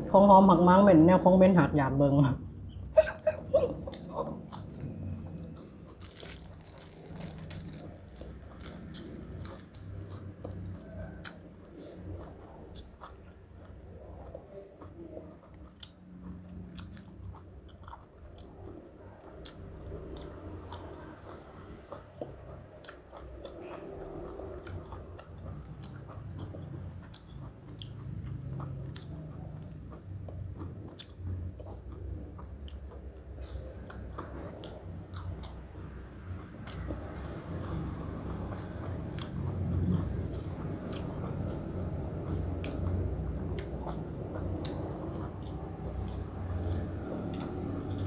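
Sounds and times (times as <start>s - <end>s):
close-up chewing: 3.9s - 48.0s
crisp crunches: 5.8s - 10.2s.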